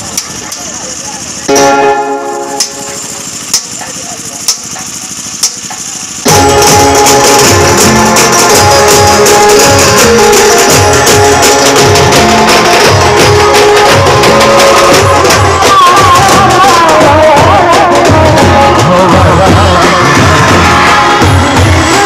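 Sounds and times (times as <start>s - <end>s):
bass and side drums beat: 0.0s - 22.0s
amplified banjo melody: 1.5s - 3.3s, 6.3s - 22.0s
drum taps: 2.5s - 22.0s.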